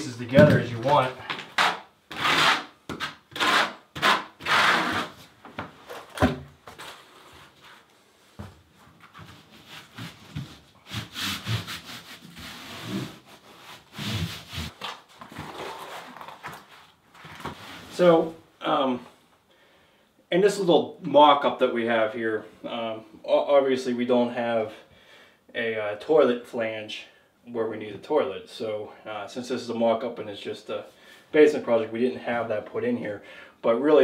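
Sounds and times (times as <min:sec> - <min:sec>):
trowel scraping: 0:01.4 - 0:05.3.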